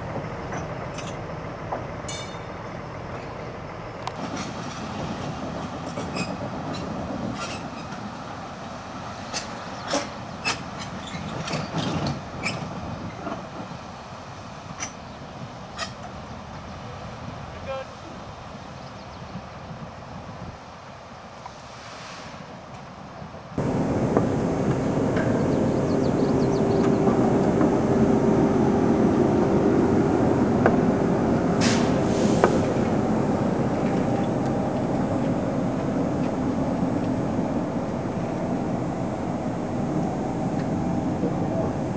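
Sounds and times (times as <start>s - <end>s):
streetcar rumbling: 0.0s - 41.9s
short hiss: 21.7s - 22.5s, 31.6s - 32.7s
steady hum: 23.6s - 41.9s.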